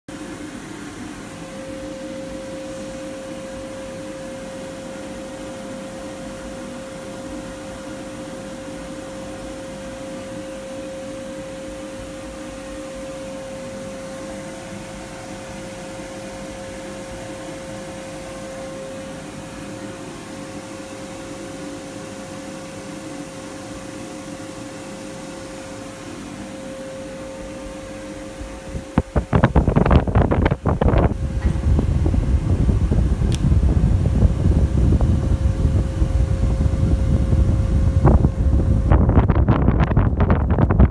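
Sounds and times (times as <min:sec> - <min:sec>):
microphone bumps and rustles: 0:28.9 - 0:34.5.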